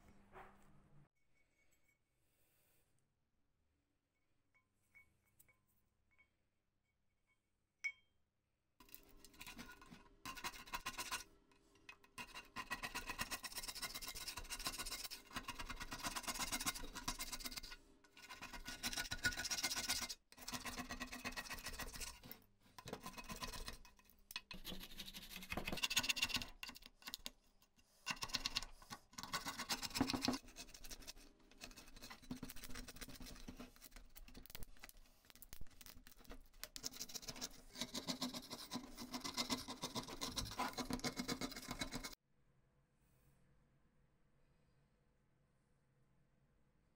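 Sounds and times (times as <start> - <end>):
plastic scraper scraping metal: 36.7 - 42.2.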